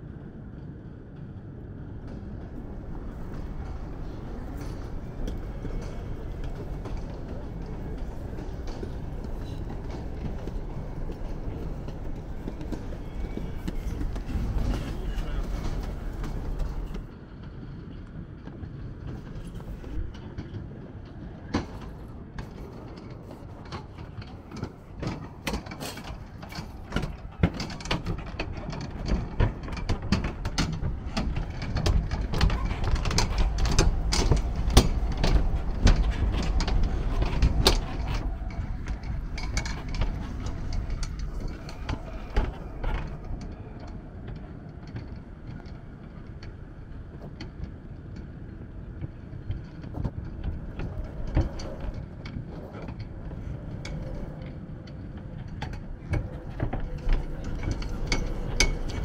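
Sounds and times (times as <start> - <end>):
sharp clicks and knocks: 21.5 - 46.6.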